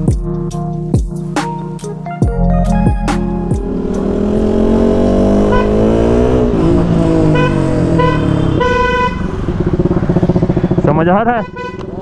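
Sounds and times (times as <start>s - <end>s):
motorcycle engine revving: 3.4s - 12.0s
car horn beeps: 5.2s - 6.5s, 7.2s - 9.5s, 11.4s - 12.0s.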